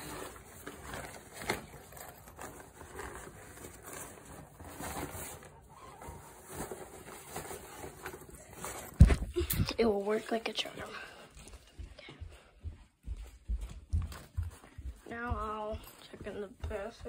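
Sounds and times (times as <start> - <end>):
blanket and cloth rustling: 0.0 - 12.4, 13.2 - 17.0.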